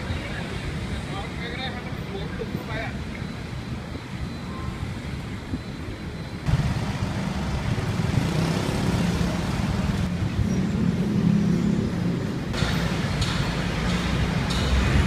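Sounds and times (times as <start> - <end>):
vehicle engines running: 6.4 - 15.0
low engine hum: 6.5 - 10.2.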